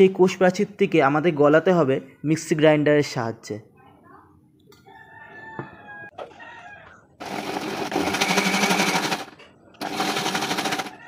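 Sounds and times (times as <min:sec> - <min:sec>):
mixer grinder motor buzzing: 0:07.2 - 0:10.9.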